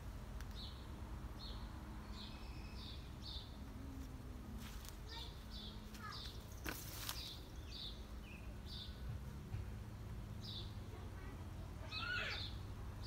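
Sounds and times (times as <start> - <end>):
small bird chirping: 1.4 - 3.6.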